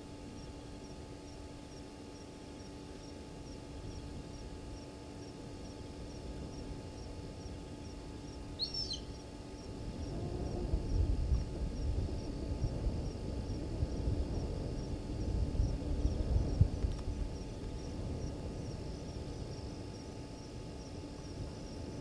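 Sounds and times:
high insect chirp: 0.0 - 22.0
low uneven rumble: 5.4 - 22.0.

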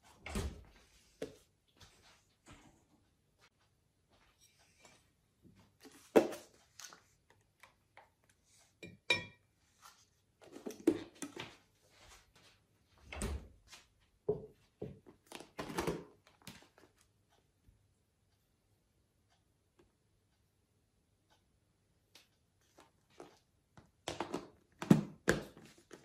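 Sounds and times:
crockery knocks and clinks: 8.8 - 9.4.

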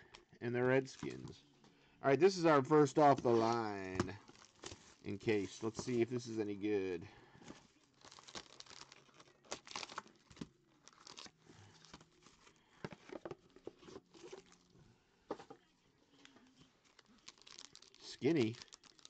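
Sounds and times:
plastic wrapper crinkling and tearing: 4.2 - 5.1, 7.7 - 12.6, 13.8 - 14.7, 16.7 - 19.0.

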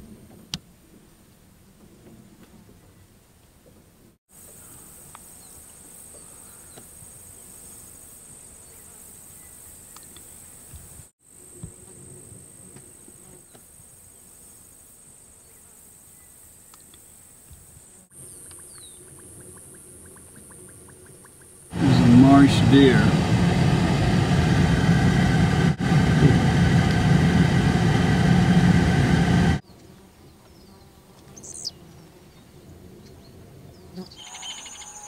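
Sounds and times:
high-pitched insect drone: 34.1 - 35.0.

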